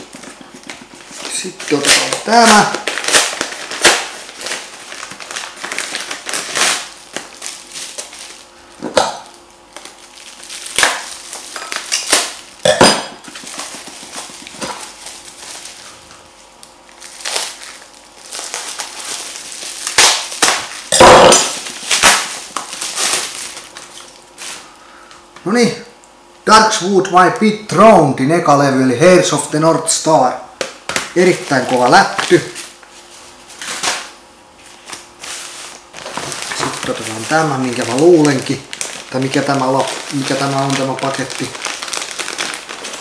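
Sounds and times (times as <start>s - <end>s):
padded envelope tearing: 0.0s - 8.5s, 9.7s - 12.6s, 13.3s - 24.7s, 34.7s - 43.0s
plastic wrapping crinkling: 0.0s - 12.6s, 13.2s - 25.2s, 30.9s - 43.0s.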